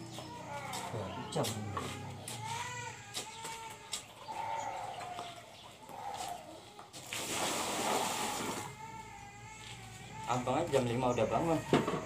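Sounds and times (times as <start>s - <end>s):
water poured from bucket splashing: 7.0s - 8.7s.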